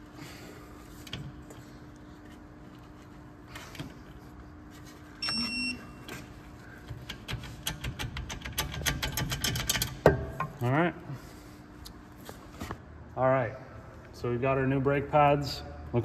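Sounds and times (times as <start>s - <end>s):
steady low hum: 0.0s - 16.0s
short electronic beep: 5.2s - 6.0s
clicking and tapping of parts: 6.8s - 10.6s.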